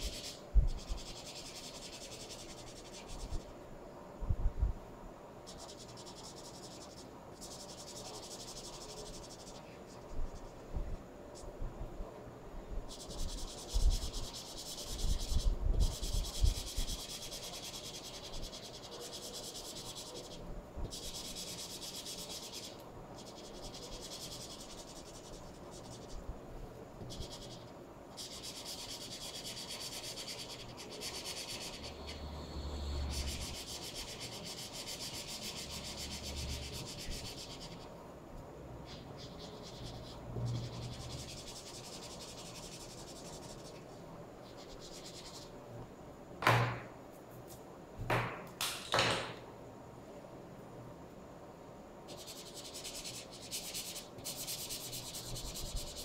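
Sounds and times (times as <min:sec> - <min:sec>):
marker scratching across paper: 0:00.0 - 0:03.5, 0:05.4 - 0:10.6, 0:12.9 - 0:26.2, 0:27.0 - 0:37.9, 0:38.8 - 0:45.5, 0:52.1 - 0:56.0.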